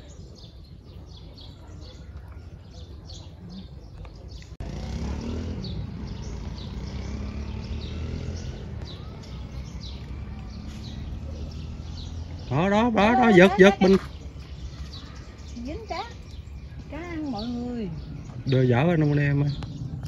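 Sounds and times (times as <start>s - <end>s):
small bird chirping: 0.0s - 20.0s
low rumble: 16.2s - 20.0s.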